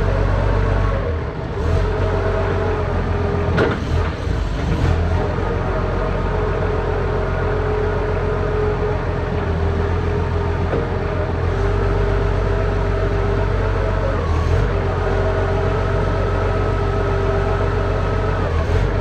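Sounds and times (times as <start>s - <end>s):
forklift engine running: 0.0s - 19.0s.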